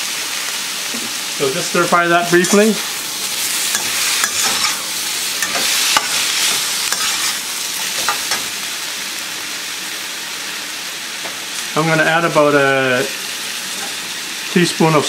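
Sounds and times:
food sizzling in a wok: 0.0s - 15.0s
metal spatula scraping a wok: 2.2s - 8.5s.

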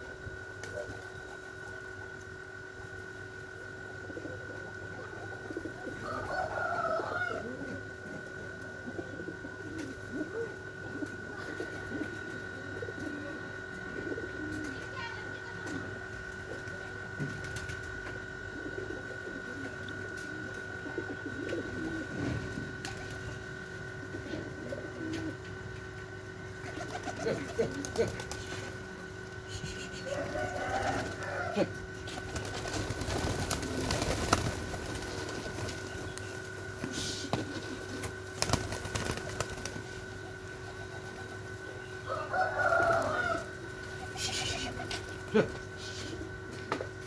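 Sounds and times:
high-pitched tone humming: 0.0s - 47.0s
pigeons cooing: 0.0s - 47.0s
wings flapping: 16.3s - 18.0s, 22.8s - 23.4s, 26.6s - 28.8s, 29.6s - 41.5s.

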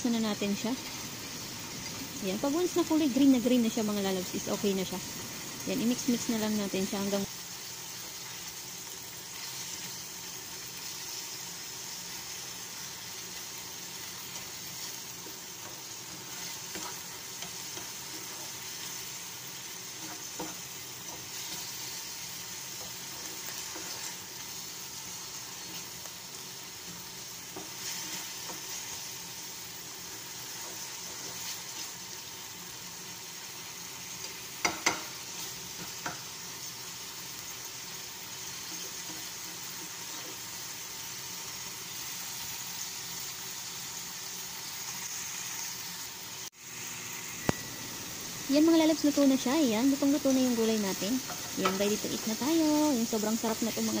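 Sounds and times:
food sizzling in a frying pan: 0.0s - 54.0s
spatula knocking against pan: 34.6s - 35.1s.

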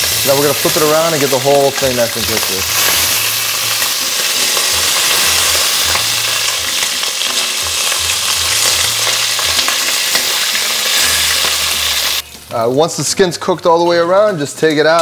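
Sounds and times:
chicken wings sizzling in oil: 0.0s - 15.0s
metal tongs clicking on pot: 3.8s - 11.6s.

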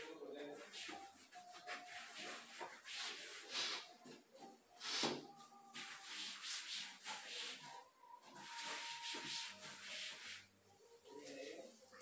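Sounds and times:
cloth rubbing wooden shelves: 0.4s - 4.0s, 4.8s - 10.6s.

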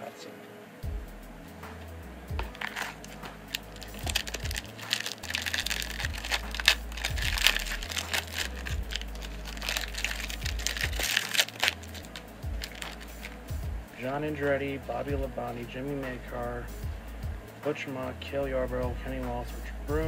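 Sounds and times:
foil wrapper crinkling: 2.4s - 13.4s.

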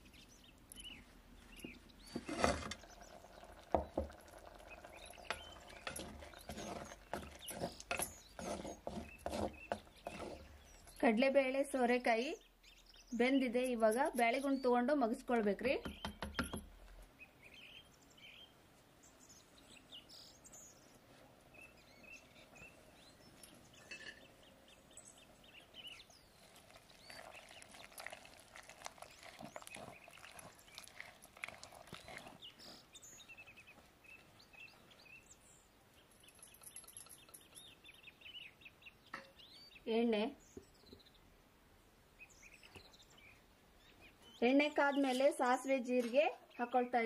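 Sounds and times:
faint birds chirping: 0.0s - 47.0s
wooden masher mashing in a pot: 2.1s - 10.9s, 26.4s - 32.4s.

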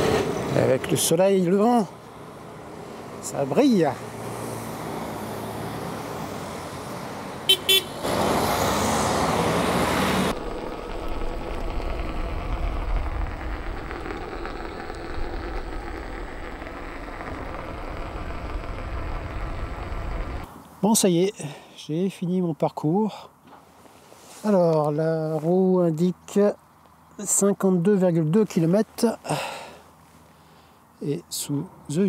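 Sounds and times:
street traffic: 0.0s - 32.0s
car horn toots: 7.5s - 8.0s
rush of noise: 8.0s - 20.5s
tyre rolling over cobblestones: 10.3s - 20.5s.

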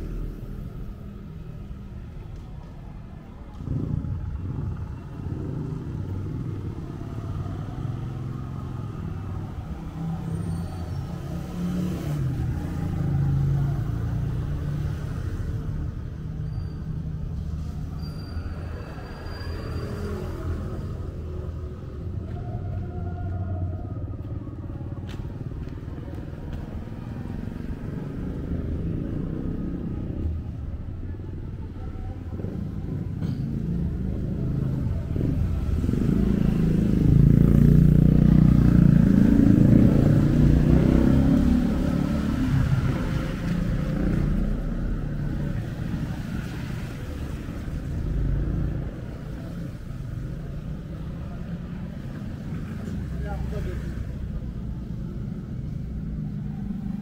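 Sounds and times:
low traffic rumble: 0.0s - 57.0s
motorcycle engine passing: 32.4s - 49.7s.

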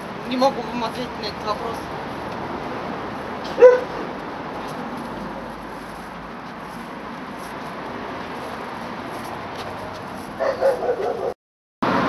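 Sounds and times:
dog barking: 3.5s - 4.1s, 10.4s - 11.4s.

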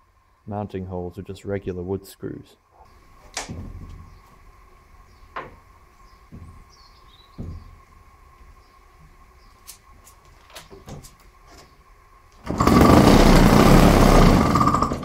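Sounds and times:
small two-stroke engine running: 12.5s - 15.0s.

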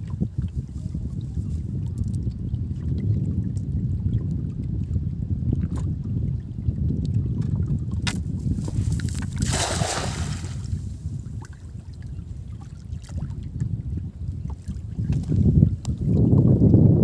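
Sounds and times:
low wind rumble: 0.0s - 17.0s
net splashing into water: 8.1s - 10.8s.

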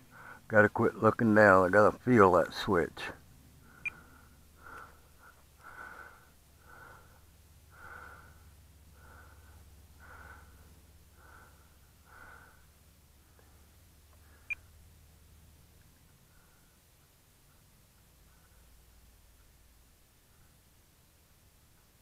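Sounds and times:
person breathing softly: 0.0s - 0.5s, 3.6s - 14.8s, 16.2s - 19.6s, 20.2s - 20.8s
faint low hum: 0.0s - 22.0s.

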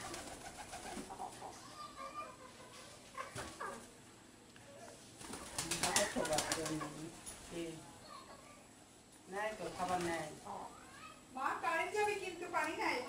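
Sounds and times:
pigeons cooing: 0.0s - 1.6s.

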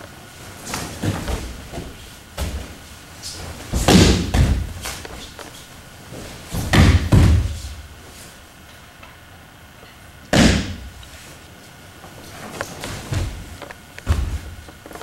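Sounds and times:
bodies thudding on padded mat: 0.7s - 5.2s, 6.3s - 7.8s, 12.8s - 14.7s.

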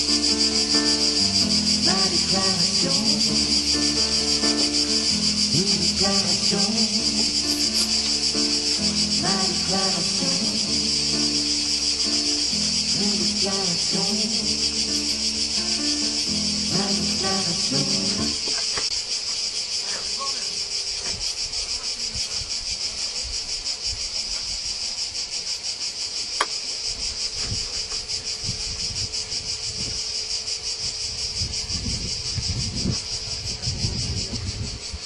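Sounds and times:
cicadas chirring: 0.0s - 35.0s
wind buffeting microphone: 27.3s - 30.2s, 30.8s - 35.0s.

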